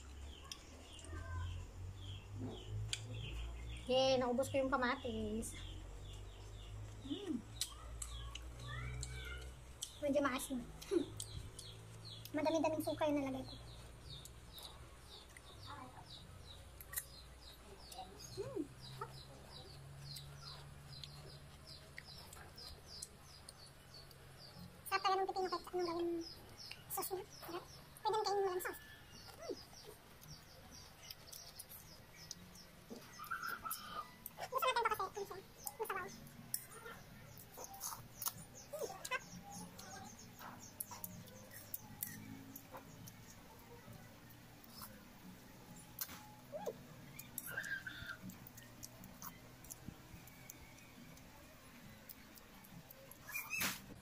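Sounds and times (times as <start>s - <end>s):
small birds chirping: 0.0s - 54.0s
mouth smacking and chewing: 10.8s - 12.3s, 16.8s - 24.4s, 25.2s - 53.8s.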